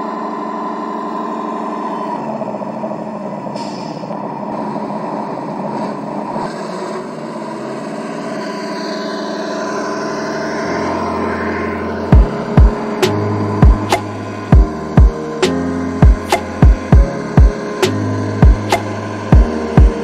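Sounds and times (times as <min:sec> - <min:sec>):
truck engine sound through speakers: 0:00.0 - 0:20.0
low hum: 0:07.1 - 0:20.0.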